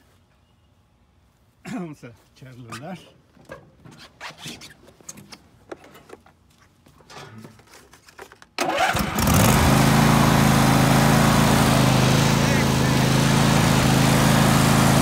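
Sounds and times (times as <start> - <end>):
lawn mower engine starting and running: 8.6 - 15.0.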